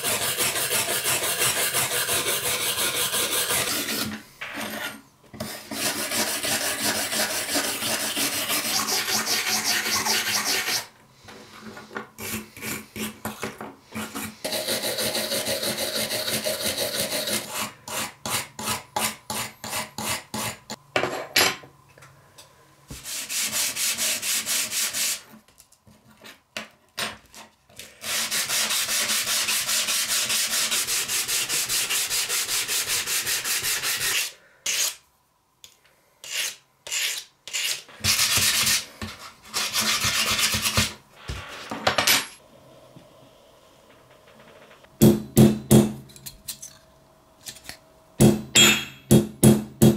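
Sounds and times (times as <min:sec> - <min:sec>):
sanding block rubbing: 0:00.0 - 0:10.9, 0:14.0 - 0:18.1, 0:23.0 - 0:25.2, 0:28.0 - 0:35.0, 0:36.2 - 0:40.9.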